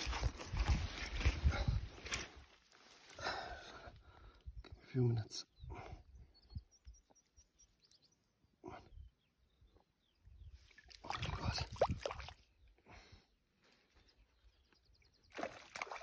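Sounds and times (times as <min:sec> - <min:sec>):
hand splashing in shallow water: 0:10.7 - 0:12.4, 0:15.3 - 0:16.0.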